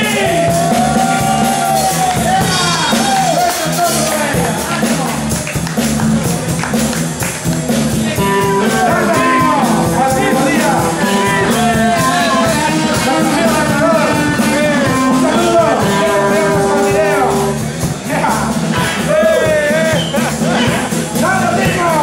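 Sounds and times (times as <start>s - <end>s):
bass guitar: 0.0s - 22.0s
drums: 0.0s - 22.0s
electric guitar: 0.0s - 22.0s
man singing into a microphone: 8.4s - 17.7s, 18.8s - 20.8s.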